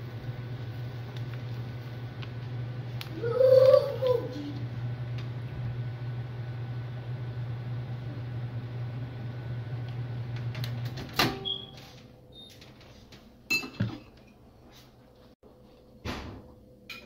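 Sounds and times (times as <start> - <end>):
glass bottle clink: 13.5 - 14.1.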